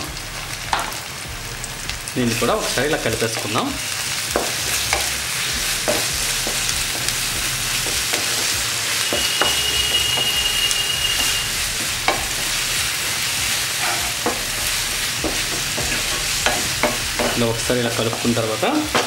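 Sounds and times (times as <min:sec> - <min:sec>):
onions sizzling in hot oil: 0:00.0 - 0:19.0
spatula scraping and tapping pan: 0:07.8 - 0:12.4, 0:13.8 - 0:17.5.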